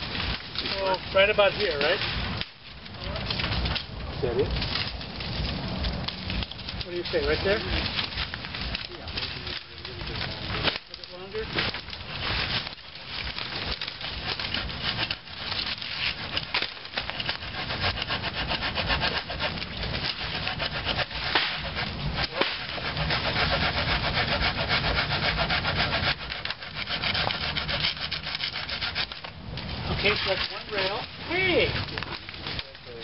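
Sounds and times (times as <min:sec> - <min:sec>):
hand saw cutting wood: 0:14.2 - 0:29.3, 0:29.9 - 0:31.1.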